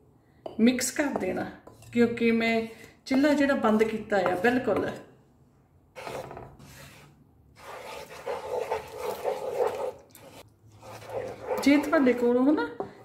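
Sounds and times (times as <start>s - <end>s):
spatula scraping in pan: 6.0s - 13.0s.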